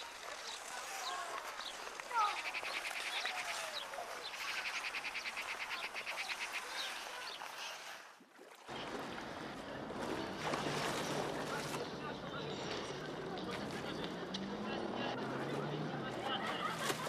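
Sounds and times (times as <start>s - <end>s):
birds chirping: 0.0s - 7.6s.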